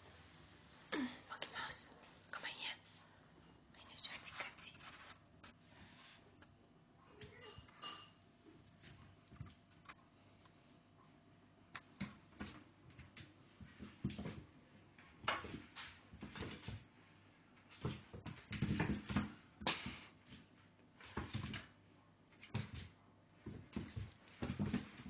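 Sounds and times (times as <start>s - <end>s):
cat scuffling and scratching: 4.4s - 6.4s, 11.8s - 16.9s, 17.6s - 25.0s.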